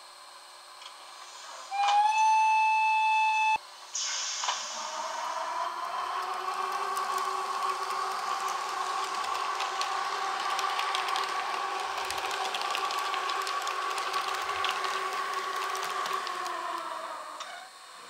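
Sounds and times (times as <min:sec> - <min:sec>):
model train whine: 0:00.0 - 0:18.0
wheels clicking on track: 0:04.4 - 0:17.6.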